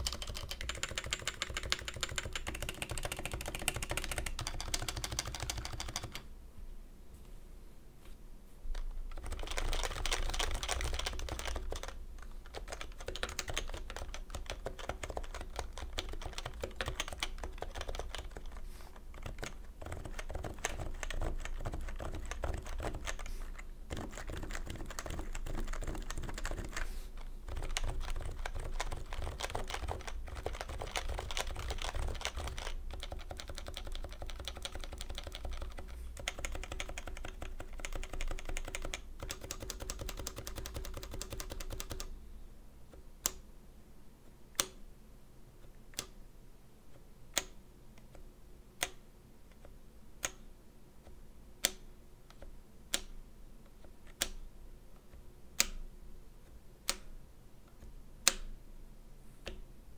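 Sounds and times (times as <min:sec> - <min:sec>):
keyboard typing: 0:00.0 - 0:06.3, 0:08.7 - 0:42.1.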